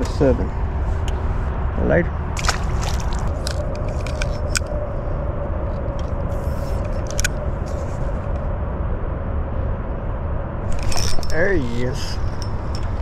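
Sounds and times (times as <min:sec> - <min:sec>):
fishing reel clicks: 0:10.8 - 0:11.4.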